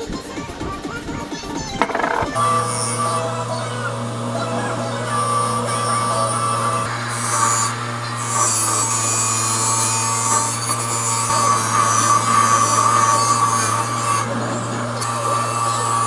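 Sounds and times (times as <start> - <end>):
metal grinding and scraping: 1.8 - 2.4
bench grinder humming: 1.8 - 16.0.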